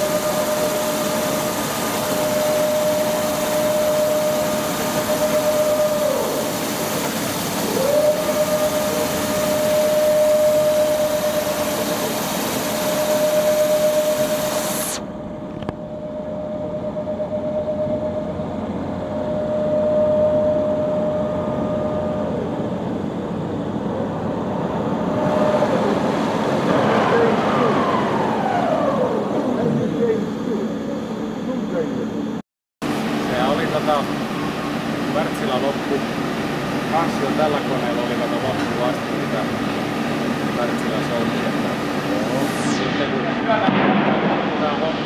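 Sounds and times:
machine broad hiss: 0:00.0 - 0:15.0
machine high whine: 0:00.0 - 0:45.0.

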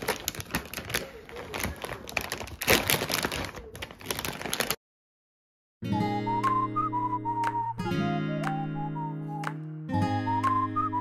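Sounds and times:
snack bag crinkling: 0:00.0 - 0:04.8.

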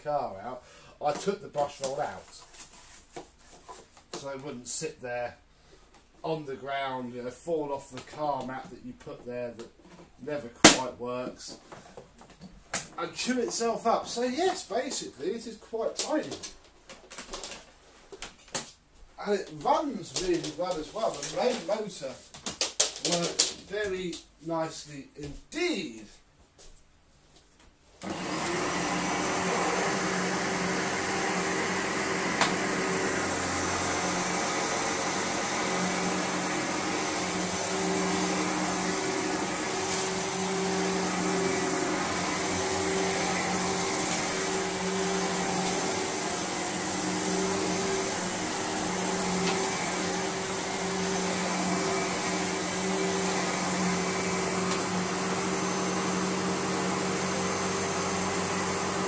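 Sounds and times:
upright vacuum cleaner running: 0:19.7 - 0:21.8, 0:28.0 - 0:59.0.

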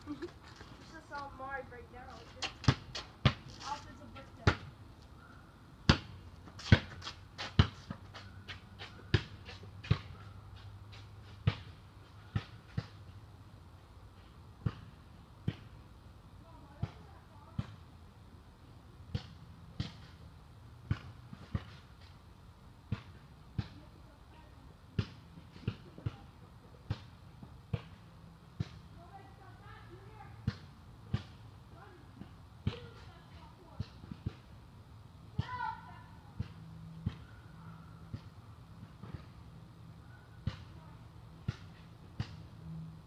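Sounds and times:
basketball bouncing on court: 0:04.4 - 0:04.7.

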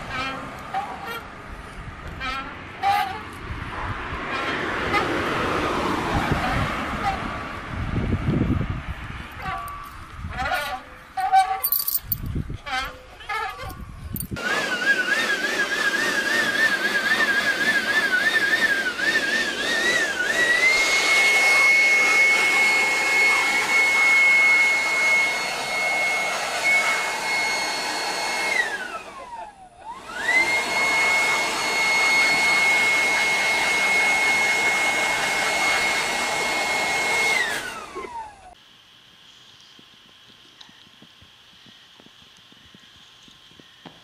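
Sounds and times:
leaf blower running: 0:14.3 - 0:38.6.

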